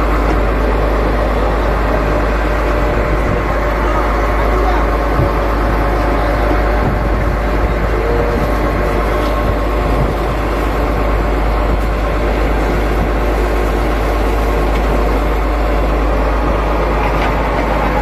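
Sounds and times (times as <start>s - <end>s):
boat diesel engine droning: 0.0s - 18.0s.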